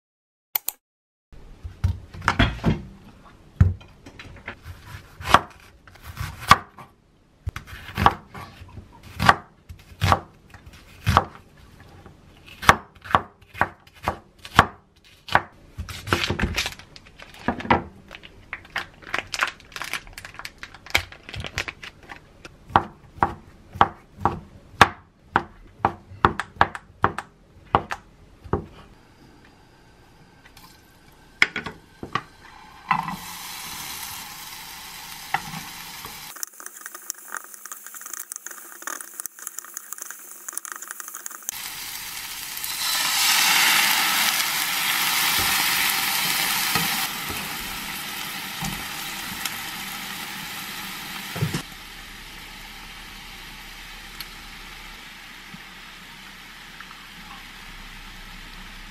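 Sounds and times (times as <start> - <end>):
knife chopping on wooden board: 4.8 - 6.9, 7.5 - 10.3, 12.6 - 16.2
food sizzling in oil: 32.3 - 58.8.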